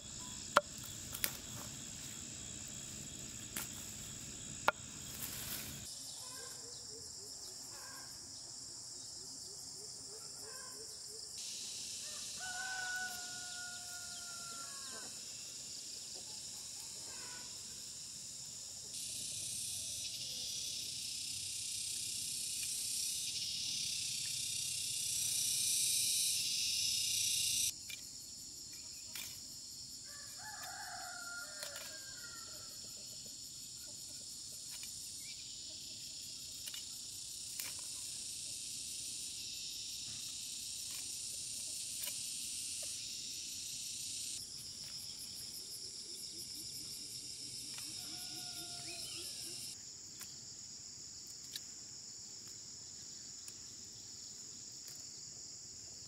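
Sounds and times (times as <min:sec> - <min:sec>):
insects chirring: 0:00.0 - 0:56.0
rooster crowing: 0:12.0 - 0:15.2, 0:30.1 - 0:32.8, 0:47.9 - 0:49.5.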